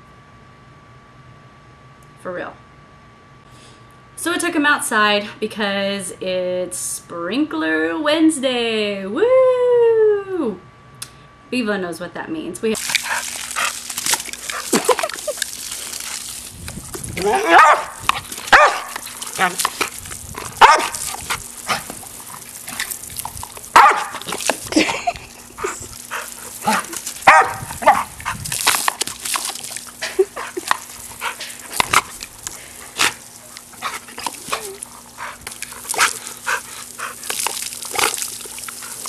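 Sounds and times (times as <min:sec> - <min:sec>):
water hose spraying: 0:12.8 - 0:39.0
dog barking: 0:17.3 - 0:19.0, 0:20.6 - 0:21.0, 0:23.8 - 0:24.2, 0:26.7 - 0:28.1.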